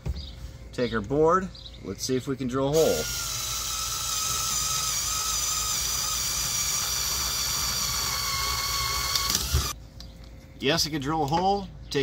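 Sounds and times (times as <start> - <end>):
cordless screwdriver drilling wood: 2.8 - 9.8.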